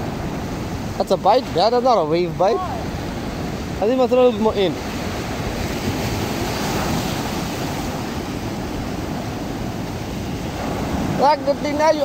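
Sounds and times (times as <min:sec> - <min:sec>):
ocean surf on beach: 0:00.0 - 0:12.0.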